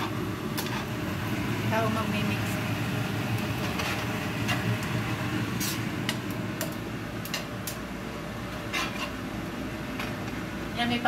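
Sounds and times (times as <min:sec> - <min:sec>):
metal utensils scraping frying pan: 0:00.0 - 0:00.9, 0:03.6 - 0:04.7, 0:08.7 - 0:09.2
steady background hum: 0:00.0 - 0:11.0.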